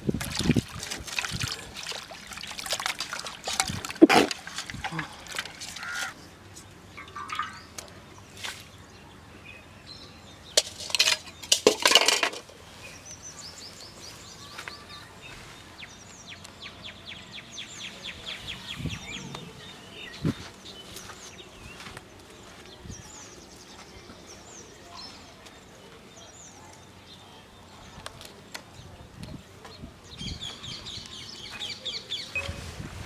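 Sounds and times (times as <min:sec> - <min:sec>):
small birds chirping: 0:04.7 - 0:11.6, 0:12.5 - 0:32.7
metallic clinks and clatters: 0:10.6 - 0:12.5.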